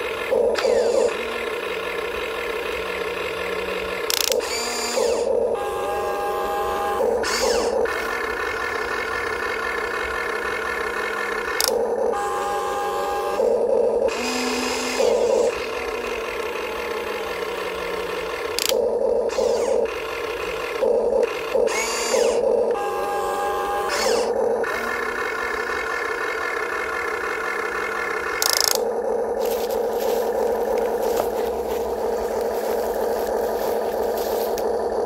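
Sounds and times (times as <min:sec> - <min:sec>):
electric motor whine: 0:00.2 - 0:01.6, 0:03.4 - 0:08.8, 0:11.4 - 0:16.8, 0:17.8 - 0:25.5, 0:28.4 - 0:35.0.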